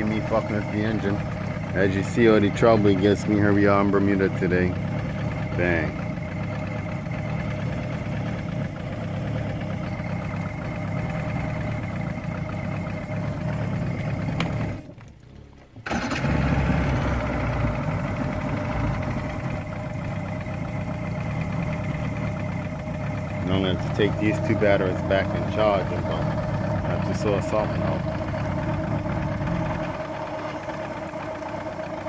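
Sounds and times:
outboard motor running: 0:00.0 - 0:32.0.

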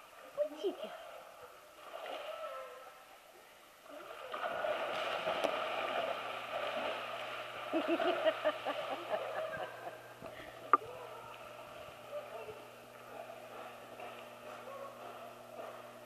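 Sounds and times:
steady low hum: 0:02.4 - 0:16.0
water splashing from swimming dog: 0:03.8 - 0:09.6.

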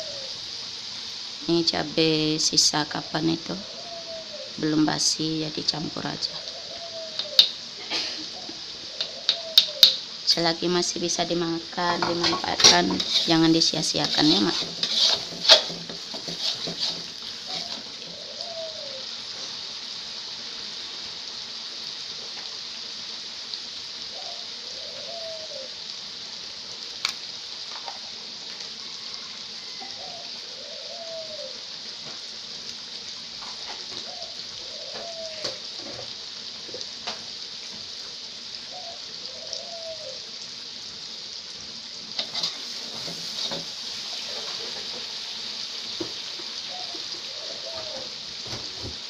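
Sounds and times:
chili paste sizzling in wok: 0:00.0 - 0:49.0
metal spatula scraping wok: 0:11.9 - 0:17.9, 0:42.2 - 0:45.1.

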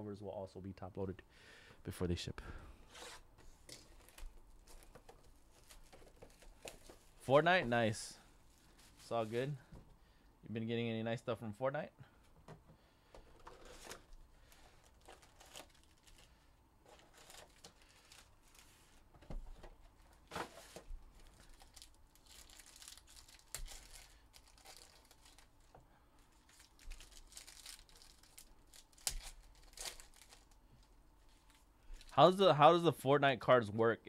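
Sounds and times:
plastic wrapping crinkling and tearing: 0:03.7 - 0:07.2, 0:13.5 - 0:19.0, 0:20.2 - 0:32.3.

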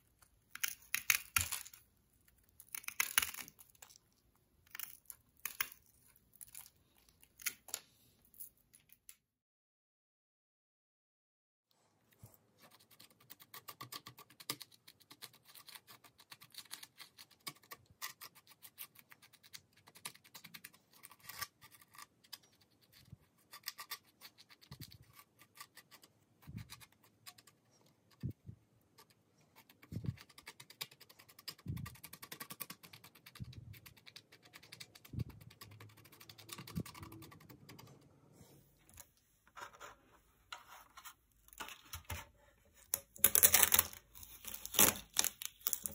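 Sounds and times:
scratching and clicking plastic: 0:12.8 - 0:38.2, 0:41.4 - 0:45.9.

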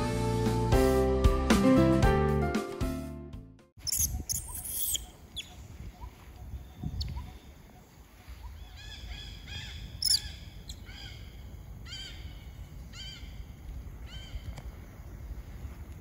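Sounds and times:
high arching animal calls: 0:03.8 - 0:15.1.

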